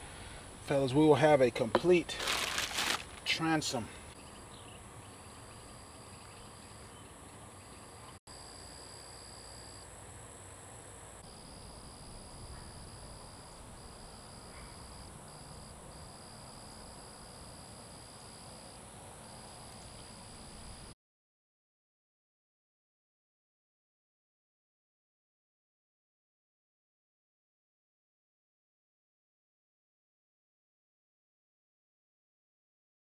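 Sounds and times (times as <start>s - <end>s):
high insect hiss: 2.1s - 21.0s.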